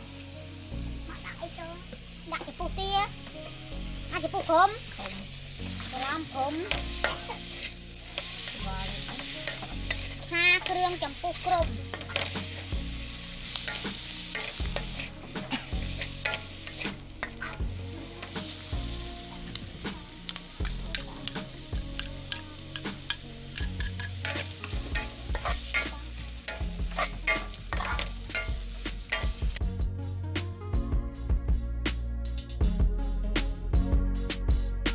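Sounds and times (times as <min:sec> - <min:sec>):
food sizzling in a wok: 0:00.0 - 0:29.6
metal spatula scraping wok: 0:03.2 - 0:29.6.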